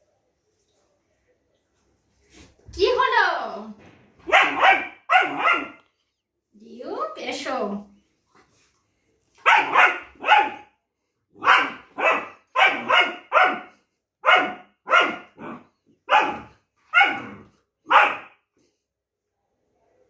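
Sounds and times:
puppy barking: 4.3 - 5.8, 9.4 - 10.7, 11.4 - 18.4.

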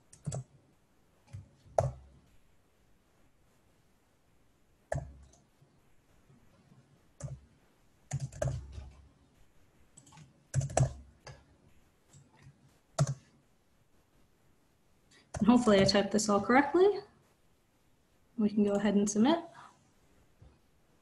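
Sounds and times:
typing on computer keyboard: 0.0 - 0.6, 1.2 - 2.0, 4.9 - 5.5, 7.2 - 7.5, 8.1 - 9.0, 10.0 - 11.5, 12.1 - 13.3.

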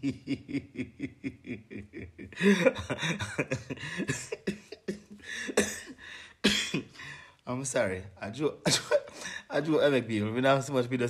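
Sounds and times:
man laughing in bursts: 0.0 - 6.2
man coughing harshly: 2.4 - 7.0, 8.7 - 9.3.

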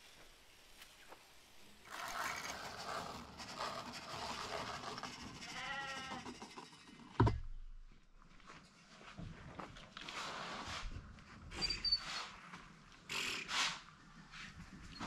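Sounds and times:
animal bleat: 5.4 - 6.3.

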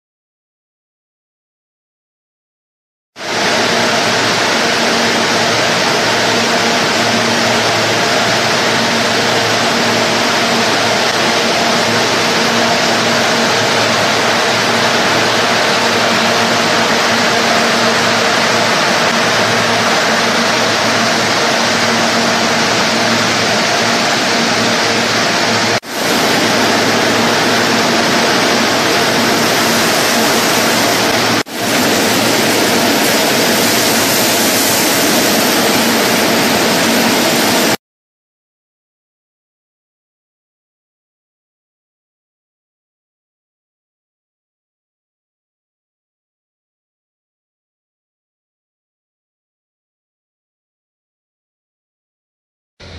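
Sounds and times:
factory machinery rushing: 3.2 - 37.8
low motor hum: 3.3 - 37.8.

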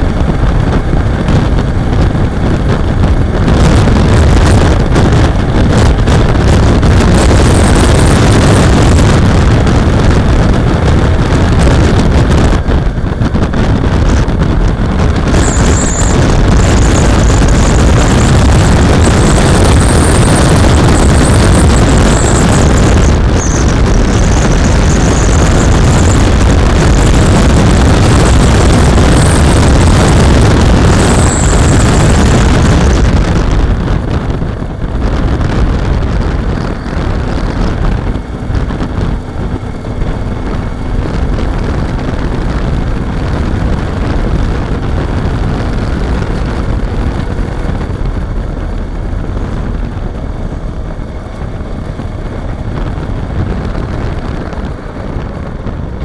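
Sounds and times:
motorcycle engine running: 0.0 - 56.0
wind rushing over microphone: 0.0 - 56.0.

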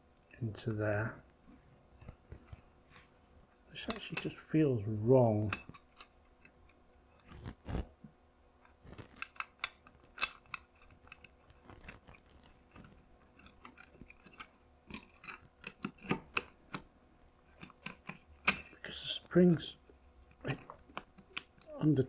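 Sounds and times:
metal parts clicking and scraping: 3.7 - 4.4, 5.5 - 7.5, 8.9 - 16.8, 17.5 - 18.7.

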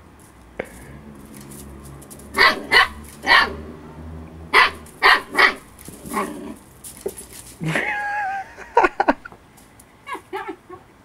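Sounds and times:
puppy barking: 2.4 - 3.7, 4.5 - 6.4.

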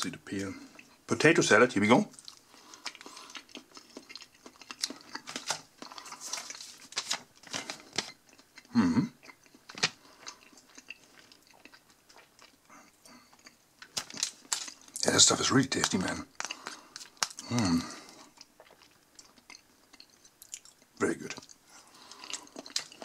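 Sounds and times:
person chewing with wet smacks: 2.1 - 6.9, 7.5 - 15.0, 18.1 - 23.0.

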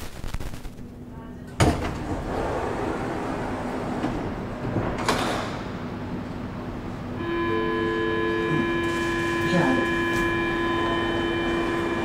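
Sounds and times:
electrical hum: 0.0 - 12.0
metro car clunk: 1.5 - 8.0.

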